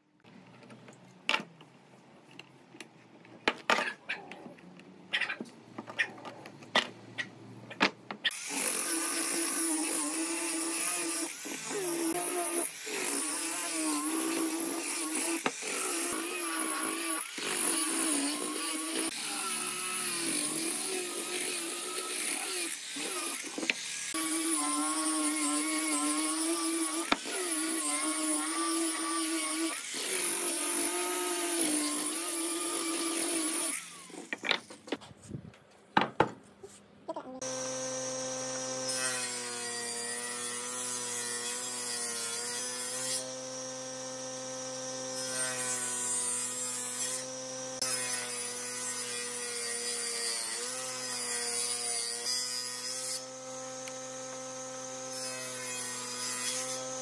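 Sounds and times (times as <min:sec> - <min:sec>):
angle grinder sanding wood: 0:08.3 - 0:34.0
table saw ripping a board: 0:37.4 - 0:57.0.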